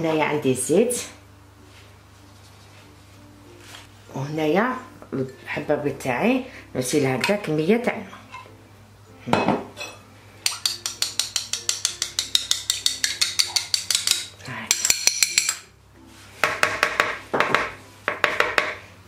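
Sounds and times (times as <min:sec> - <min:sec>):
utensil clinking on glass dish: 0:09.4 - 0:15.7.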